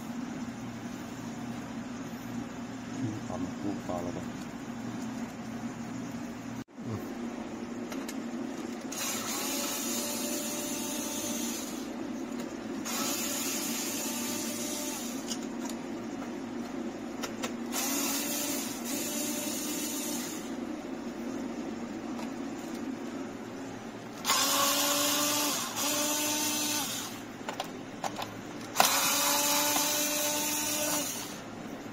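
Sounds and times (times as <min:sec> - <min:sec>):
steady low hum: 0:00.0 - 0:31.9
cordless drill motor whirring: 0:08.9 - 0:11.9, 0:12.9 - 0:15.4, 0:17.7 - 0:20.5, 0:24.2 - 0:27.2, 0:28.7 - 0:31.4.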